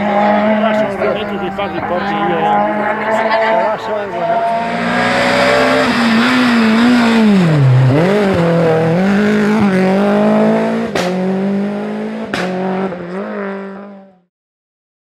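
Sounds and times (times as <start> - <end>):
rally car engine at high revs: 0.0 - 14.2.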